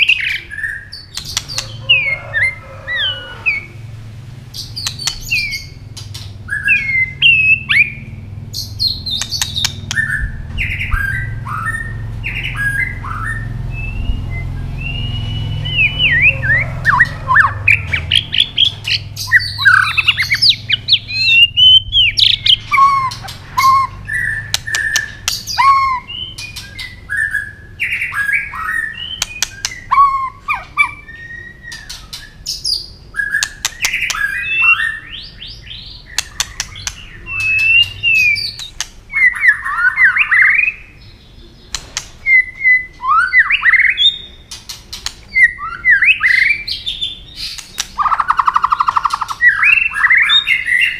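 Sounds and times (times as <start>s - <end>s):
bird clicking notes: 4.8s - 6.4s, 9.1s - 10.1s, 24.5s - 25.8s, 29.2s - 29.8s, 36.2s - 39.0s, 47.5s - 49.5s
bird singing whistled phrases: 6.5s - 17.6s, 18.2s - 40.9s, 42.2s - 44.4s, 45.3s - 50.9s.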